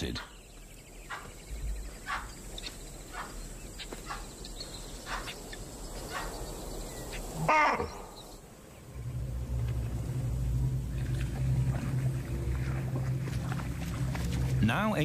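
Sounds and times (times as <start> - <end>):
animal alarm calls: 2.0 - 6.4, 7.1 - 8.2.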